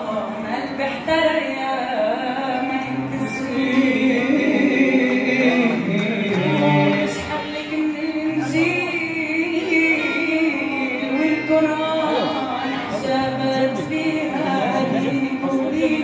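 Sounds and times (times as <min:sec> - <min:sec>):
group singing unaccompanied: 0:03.0 - 0:07.8, 0:10.8 - 0:16.0.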